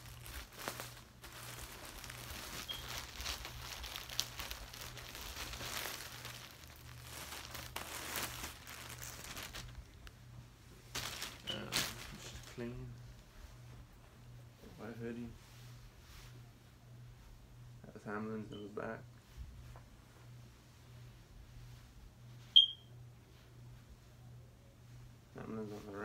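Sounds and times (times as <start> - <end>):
plastic packaging crinkling: 0.0 - 10.1, 10.9 - 12.6.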